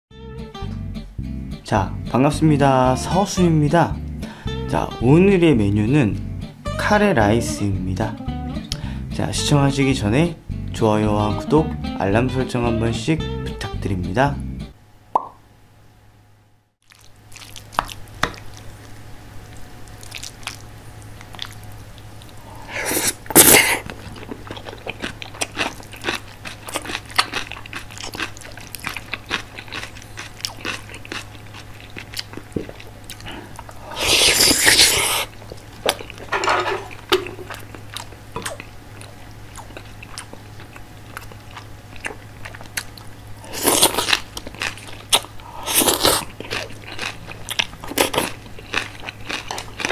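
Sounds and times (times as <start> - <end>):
chewing: 16.8 - 22.4, 23.8 - 36.3, 36.9 - 49.9
loud bite and slurp: 22.8 - 23.9, 33.9 - 35.3, 45.1 - 46.3
spoon scraping ceramic plate: 36.3 - 37.0.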